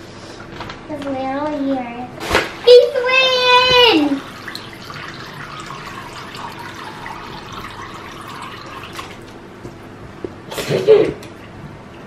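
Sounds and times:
water trickling and dripping: 3.7s - 9.8s.

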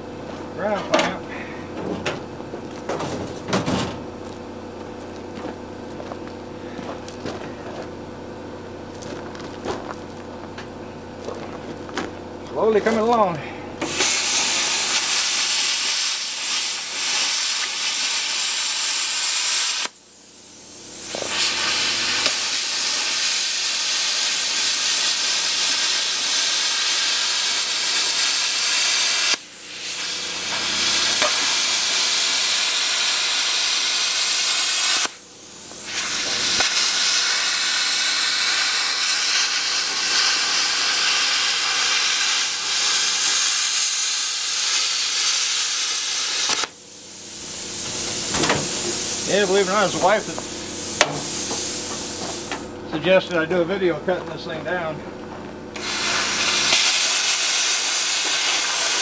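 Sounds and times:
plasma cutter hissing: 13.8s - 52.7s, 55.8s - 59.0s.

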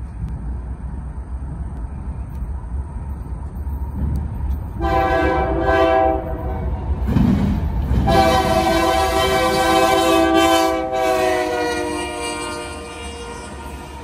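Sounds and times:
locomotive air horn blasts: 4.8s - 6.8s, 8.0s - 14.0s.

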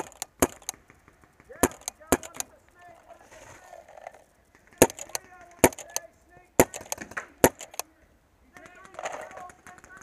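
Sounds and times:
paintball marker shots: 0.0s - 2.5s, 4.6s - 7.9s.

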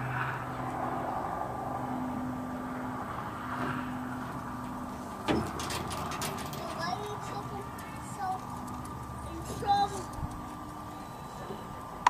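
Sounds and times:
engine humming: 0.0s - 12.0s
steel chain clanking: 4.6s - 10.7s.

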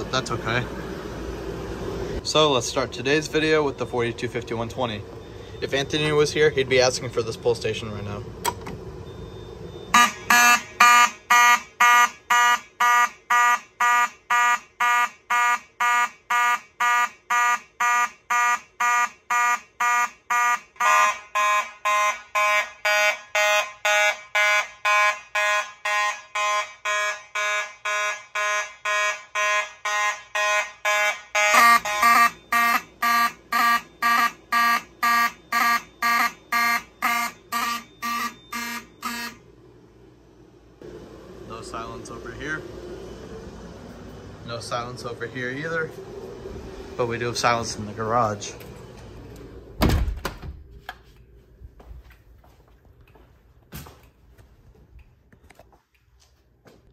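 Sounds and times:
fire alarm horns pulsing: 3.1s - 7.3s, 9.0s - 39.5s.

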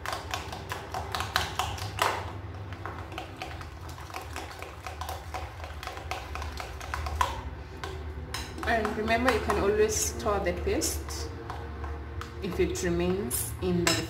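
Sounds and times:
utensil tapping against a plate: 3.1s - 9.7s.

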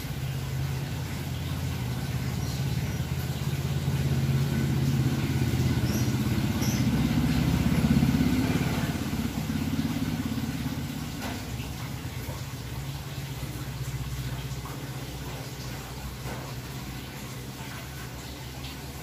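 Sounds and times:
vehicle engine passing by: 0.0s - 15.0s.

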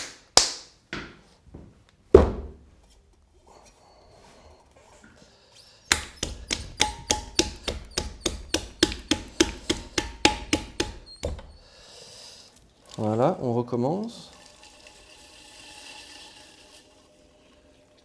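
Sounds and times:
hands slapping wet clay: 5.9s - 11.5s.

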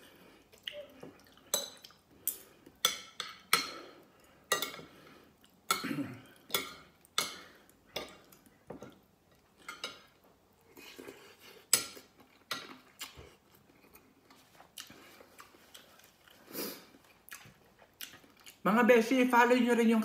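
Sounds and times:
cutlery clinking on ceramic plate: 4.5s - 4.9s.

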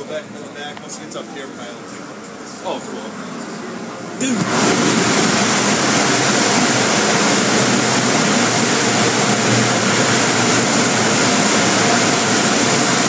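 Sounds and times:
air-dryer blowers rushing: 4.1s - 13.0s.

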